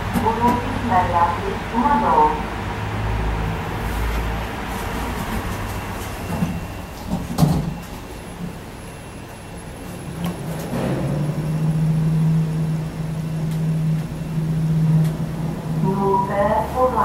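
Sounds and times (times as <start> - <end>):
elevator low hum: 0.0 - 17.0
elevator door clunk: 5.2 - 8.5, 9.8 - 15.7.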